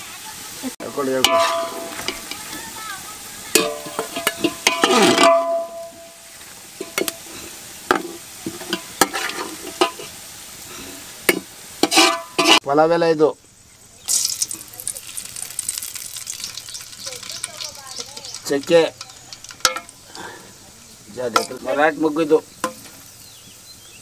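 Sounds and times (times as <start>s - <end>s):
oil sizzling: 0.0s - 24.0s
steel spoon scraping a pot: 0.8s - 2.6s, 3.6s - 6.2s, 8.6s - 10.2s, 11.8s - 12.6s, 15.6s - 20.0s.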